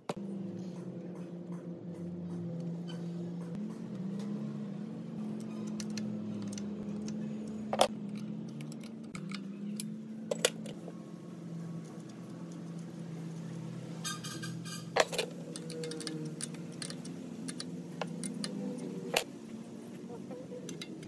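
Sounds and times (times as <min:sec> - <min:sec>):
soft background music: 0:00.0 - 0:21.0
spanner clinking on metal fitting: 0:14.1 - 0:18.8.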